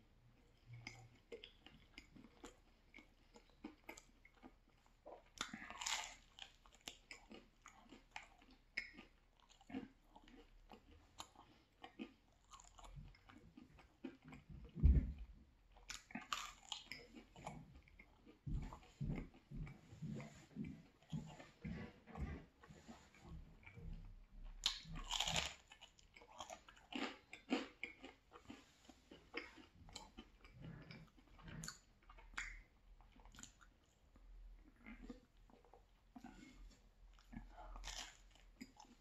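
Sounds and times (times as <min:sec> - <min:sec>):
wet mouth chewing smacks: 0:15.8 - 0:33.7
pizza crust crunching: 0:24.6 - 0:32.4, 0:34.8 - 0:39.0.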